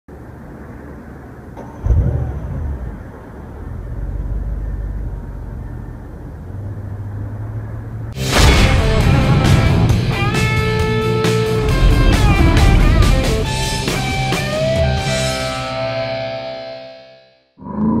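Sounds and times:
car engine idling and revving: 1.1s - 15.0s
music: 8.2s - 17.5s.

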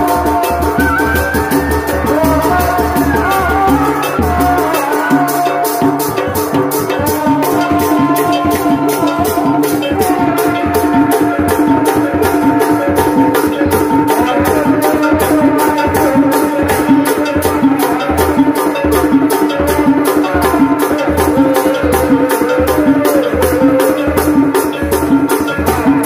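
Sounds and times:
held melody line: 0.0s - 18.1s
fast drum beat: 0.0s - 26.0s.

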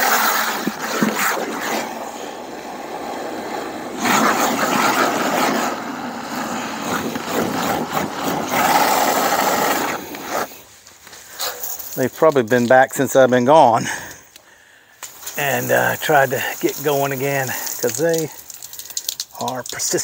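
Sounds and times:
hose water filling a bucket: 0.0s - 10.6s, 15.1s - 20.0s.

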